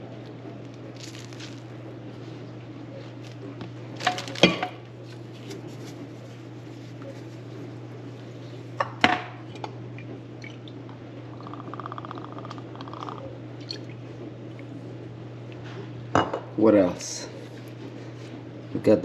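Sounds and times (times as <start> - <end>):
steady low hum: 0.0 - 19.0
kitchenware clattering: 4.0 - 4.8.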